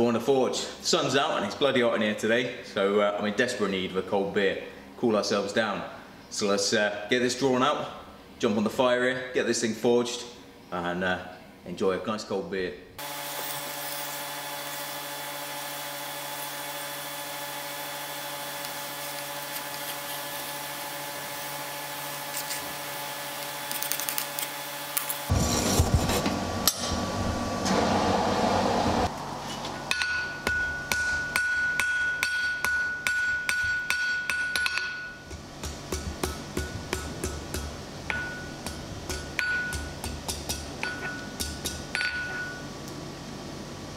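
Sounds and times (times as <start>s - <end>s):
anvil ringing: 29.9s - 35.3s, 37.5s - 42.6s
hammer striking steel on anvil: 29.9s - 42.6s.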